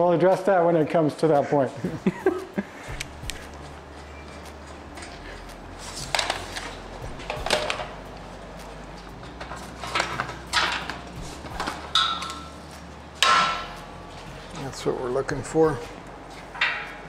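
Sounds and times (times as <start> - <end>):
steady low hum: 1.7 - 17.0.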